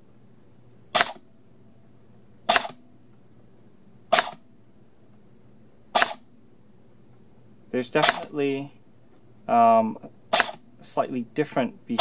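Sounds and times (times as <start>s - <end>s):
motor and gears cycling: 0.9s - 1.2s, 2.5s - 2.8s, 4.1s - 4.4s, 5.9s - 6.3s, 7.8s - 8.4s, 10.3s - 10.6s.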